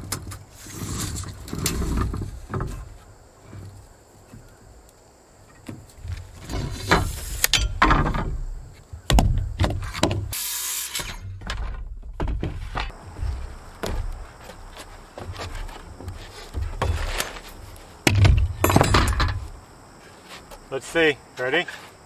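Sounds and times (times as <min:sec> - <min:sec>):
wooden knocks and clatters: 0:00.0 - 0:04.6, 0:05.4 - 0:10.3, 0:11.1 - 0:19.6
short hiss: 0:10.3 - 0:11.2.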